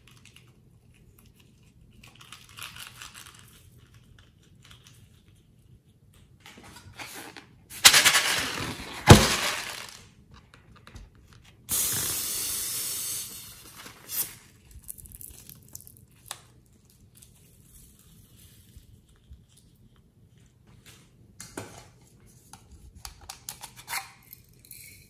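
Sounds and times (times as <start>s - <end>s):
balloon rustling: 7.8s - 10.0s
air hissing: 11.7s - 14.4s.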